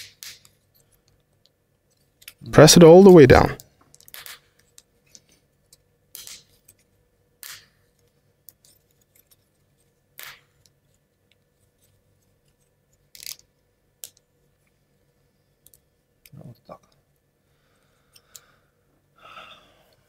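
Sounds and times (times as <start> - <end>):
wooden parts clicking together: 13.1 - 14.2.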